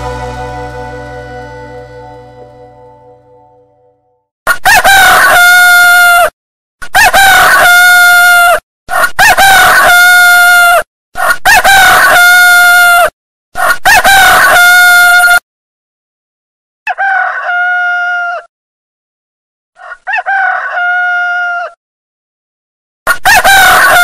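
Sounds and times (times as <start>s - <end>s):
rooster crowing: 4.6s - 6.3s, 16.9s - 18.5s, 19.8s - 21.8s.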